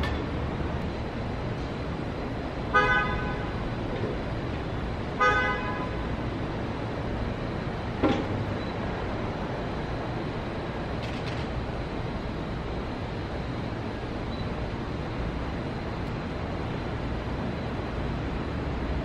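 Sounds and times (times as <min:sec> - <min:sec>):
city traffic rumble: 0:00.0 - 0:19.0
car horn toots: 0:02.8 - 0:03.5, 0:05.2 - 0:06.0.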